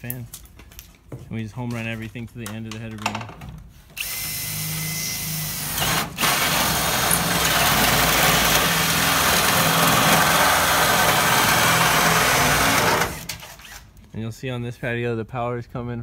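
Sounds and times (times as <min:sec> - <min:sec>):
cordless drill boring metal: 0:04.0 - 0:13.8.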